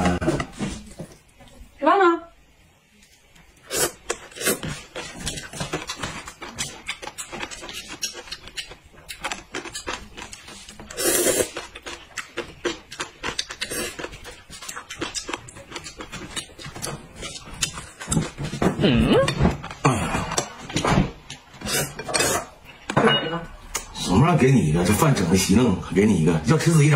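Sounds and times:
wet chewing of noodles: 3.6s - 18.6s.

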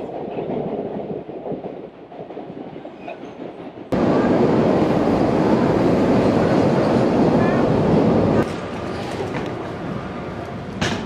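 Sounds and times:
train at station platform: 0.0s - 11.0s
train rumbling: 0.0s - 11.0s.

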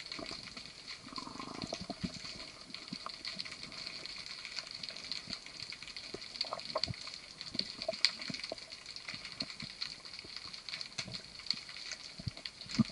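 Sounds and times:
crackling and clicking: 0.0s - 12.9s
underwater hiss: 1.0s - 2.1s.

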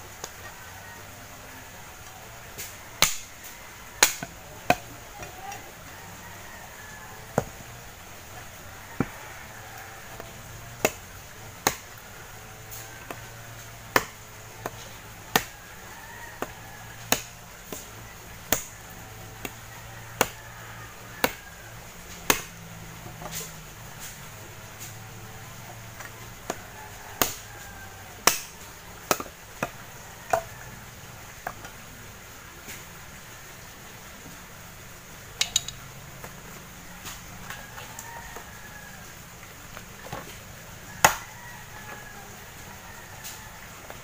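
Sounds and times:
machete chopping wood: 2.6s - 3.3s, 4.0s - 5.4s, 10.2s - 12.0s, 13.9s - 15.6s, 16.4s - 17.9s, 18.5s - 18.8s, 21.2s - 21.4s, 22.2s - 22.6s, 27.2s - 27.4s, 28.2s - 30.5s, 41.0s - 41.3s.

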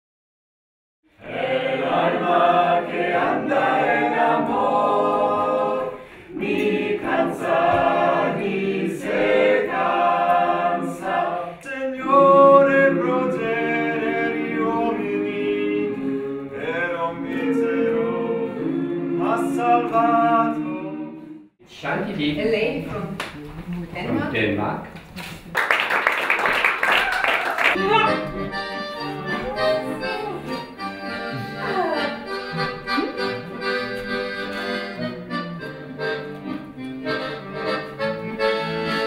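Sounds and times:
group singing unaccompanied: 1.2s - 21.6s.

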